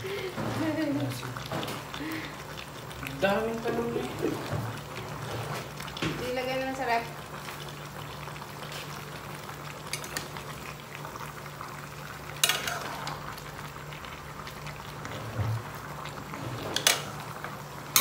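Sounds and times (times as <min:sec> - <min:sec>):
pot boiling: 0:00.0 - 0:18.0
utensil clinking against pot: 0:12.4 - 0:12.9.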